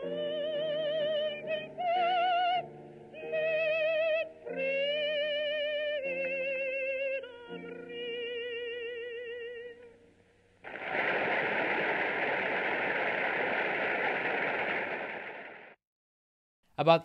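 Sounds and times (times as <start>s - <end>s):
large crowd applauding: 10.7s - 15.8s.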